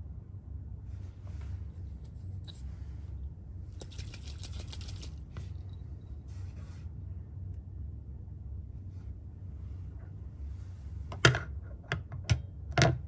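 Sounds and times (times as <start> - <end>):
liquid sloshing in test tube: 3.8 - 5.2.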